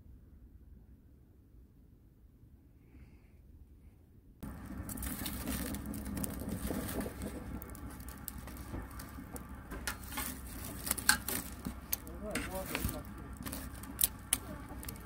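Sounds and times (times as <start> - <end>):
wood fire crackling: 4.4 - 15.0
metal tongs scraping and clicking: 9.8 - 15.0.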